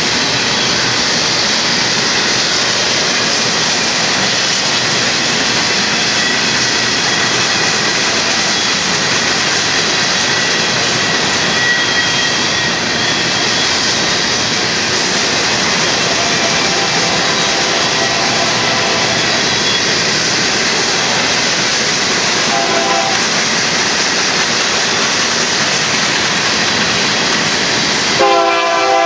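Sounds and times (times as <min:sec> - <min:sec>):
train wheels roaring on rails: 0:00.0 - 0:29.0
faint high wheel squeal: 0:04.2 - 0:23.3.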